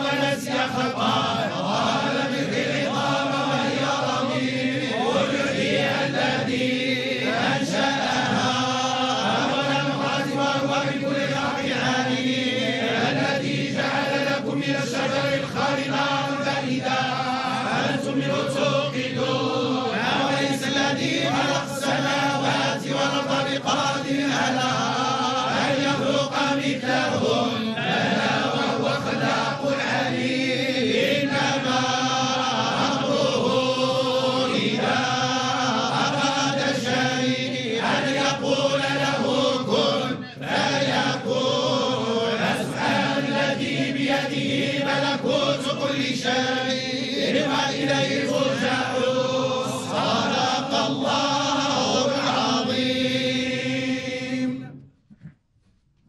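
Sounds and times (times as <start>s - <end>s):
men chanting in unison: 0.0s - 54.7s.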